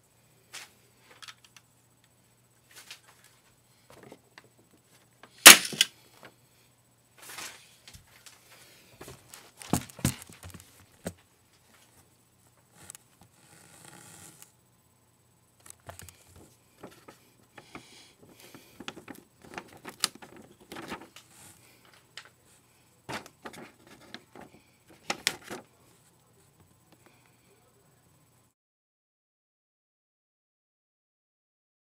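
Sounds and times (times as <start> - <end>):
toy crossbow snap: 5.4 - 5.9.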